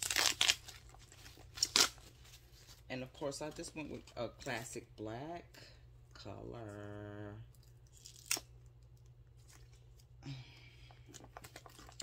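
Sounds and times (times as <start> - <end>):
plastic rustling and crinkling: 11.0 - 12.0.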